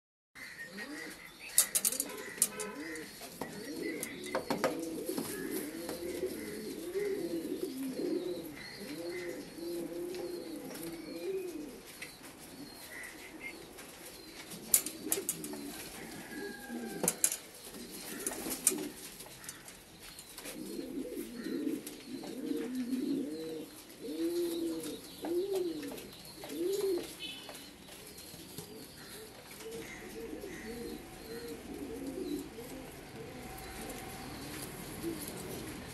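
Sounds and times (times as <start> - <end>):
pigeons cooing: 0.4 - 35.9.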